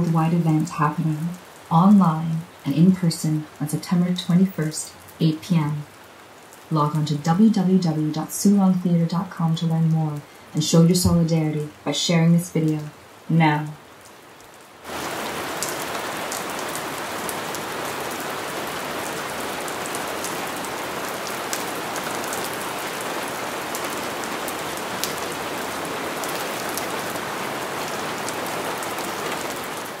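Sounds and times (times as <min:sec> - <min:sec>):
steady rain: 0:00.0 - 0:30.0
raindrop ticks: 0:14.0 - 0:18.2, 0:19.1 - 0:27.2.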